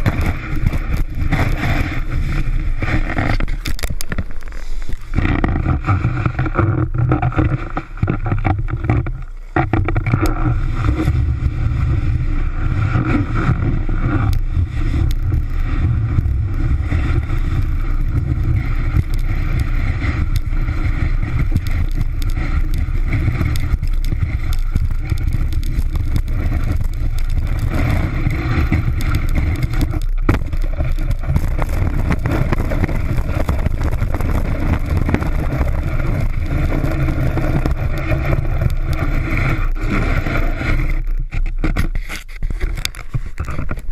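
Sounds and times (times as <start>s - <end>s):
snowboard rumbling and scraping on snow: 0.0s - 43.9s.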